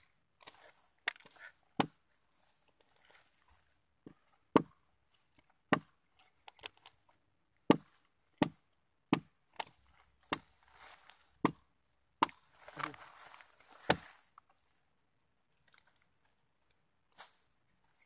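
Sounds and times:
knife chopping wood: 0:00.4 - 0:02.0, 0:04.1 - 0:04.8, 0:05.7 - 0:05.9, 0:07.7 - 0:10.6, 0:11.4 - 0:11.6, 0:12.2 - 0:13.0, 0:13.7 - 0:14.2.

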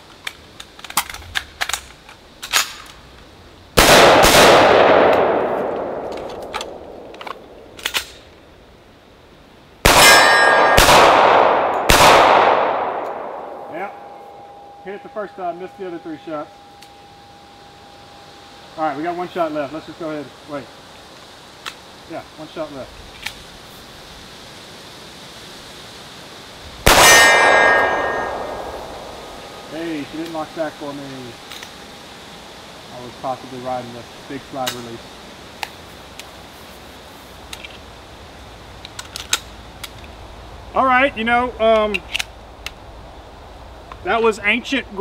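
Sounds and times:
pistol shots: 0:03.8 - 0:07.5, 0:09.8 - 0:14.2, 0:26.8 - 0:29.7
rifle shot echo: 0:03.8 - 0:07.8, 0:09.8 - 0:14.6, 0:26.8 - 0:30.0
metallic ring: 0:10.0 - 0:10.8, 0:13.7 - 0:19.2, 0:27.0 - 0:30.0
pistol slide racking clicks: 0:38.8 - 0:40.1.

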